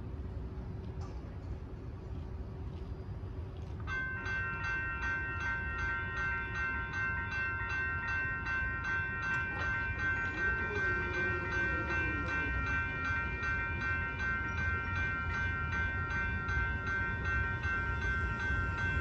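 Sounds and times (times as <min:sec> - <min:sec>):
railroad crossing bell ringing: 0:03.8 - 0:19.0.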